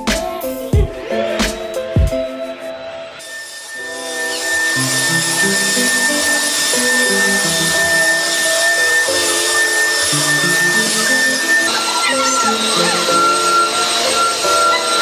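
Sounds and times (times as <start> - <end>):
background music: 0.0 - 15.0
vacuum cleaner whine: 3.2 - 15.0.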